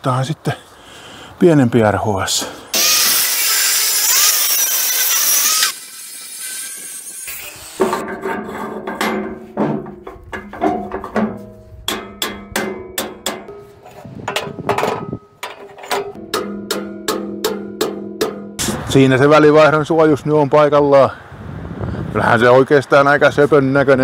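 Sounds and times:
angle grinder cutting steel: 0:02.7 - 0:08.5.

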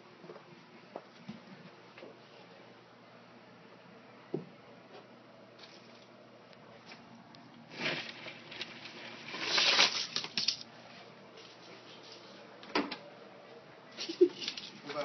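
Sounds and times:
plastic bag rustling: 0:07.7 - 0:12.4.

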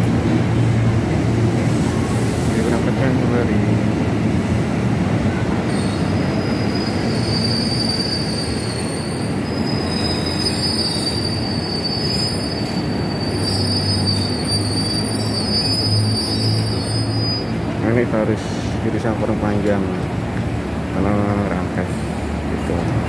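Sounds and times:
low train rumble: 0:00.0 - 0:23.0
train wheels squealing: 0:05.7 - 0:17.6.

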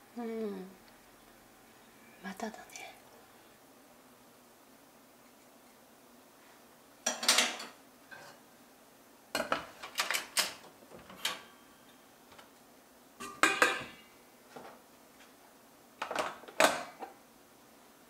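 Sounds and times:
metal pot and lid clattering: 0:07.0 - 0:08.4, 0:13.2 - 0:14.0.

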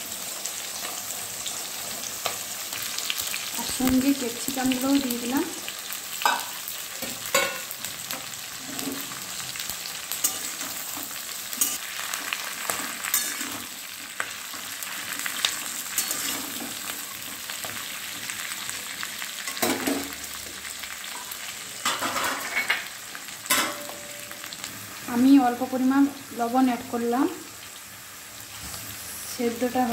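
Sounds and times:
vegetables sizzling in hot oil: 0:00.0 - 0:29.9
spatula scraping a pan: 0:10.1 - 0:17.4.

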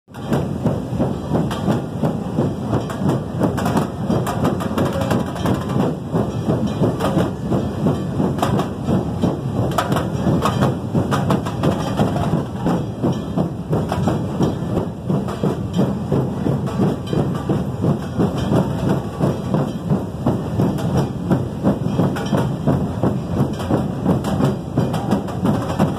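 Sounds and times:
drum band playing fast beat: 0:00.1 - 0:25.9.

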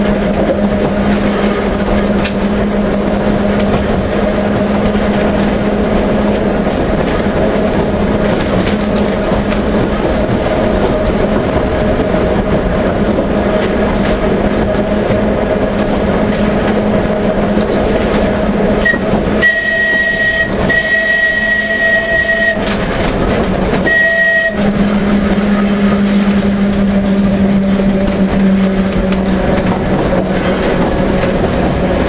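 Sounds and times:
tramcar humming on track: 0:00.0 - 0:32.0
high steady tone: 0:18.8 - 0:22.8, 0:23.8 - 0:26.0.

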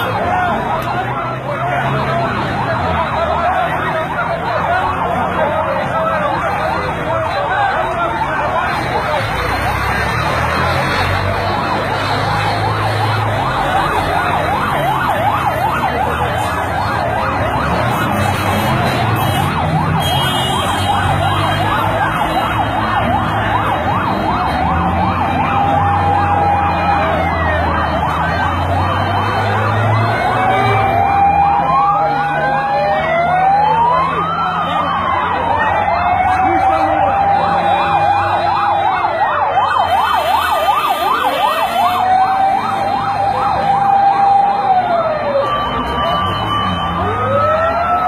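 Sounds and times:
emergency sirens wailing: 0:00.0 - 0:48.0.

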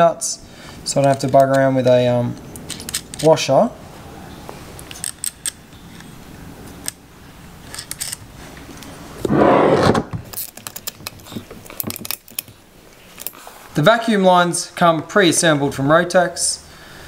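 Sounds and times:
metal tool clicking and scraping: 0:04.8 - 0:06.1, 0:07.6 - 0:08.2.

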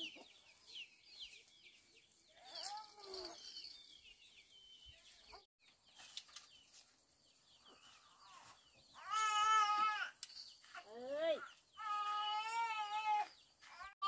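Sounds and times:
chickens clucking: 0:00.0 - 0:02.0.

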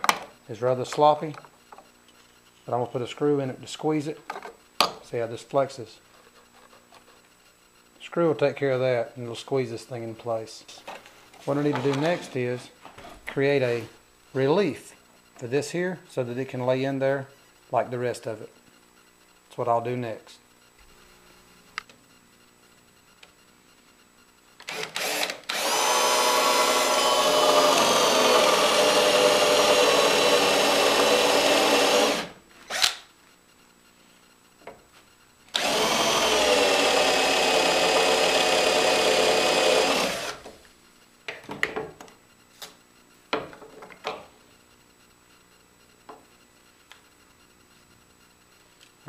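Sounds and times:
cordless drill boring wood: 0:24.7 - 0:33.0, 0:35.5 - 0:40.5.

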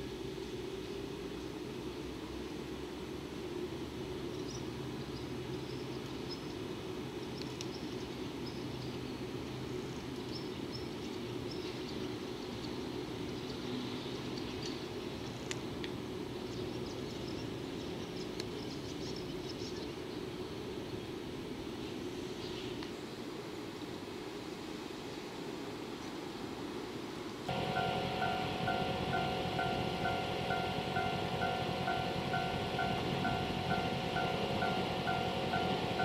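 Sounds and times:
electric locomotive humming: 0:27.5 - 0:36.0
faint high chirps: 0:27.5 - 0:36.0.

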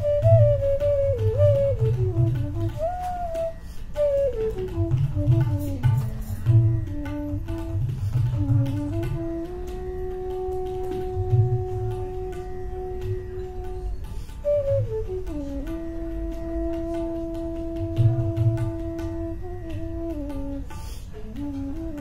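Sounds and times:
bamboo flute melody: 0:00.0 - 0:22.0
tabla drumming: 0:00.0 - 0:22.0.

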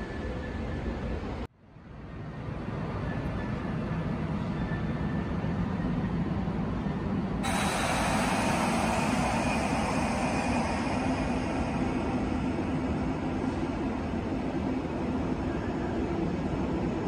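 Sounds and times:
low rumble of station ambience: 0:00.0 - 0:17.0
broad hiss: 0:07.4 - 0:14.1.

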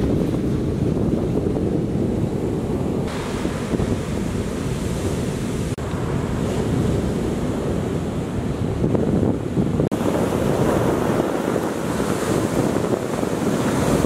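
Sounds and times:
surf breaking on beach: 0:00.0 - 0:14.0
wind buffeting microphone: 0:00.0 - 0:14.0.

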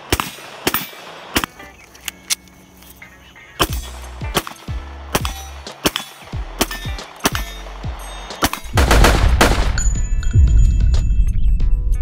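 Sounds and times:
sharp gunshots: 0:00.0 - 0:01.6, 0:03.6 - 0:10.0
music with deep bass pulse: 0:03.6 - 0:12.0.

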